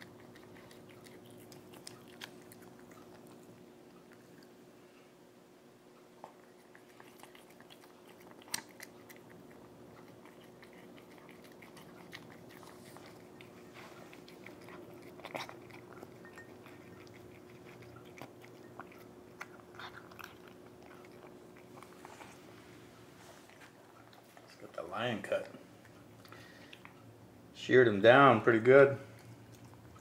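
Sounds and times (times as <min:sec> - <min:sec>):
cat crunching dry food: 0:00.0 - 0:04.6, 0:06.3 - 0:22.4.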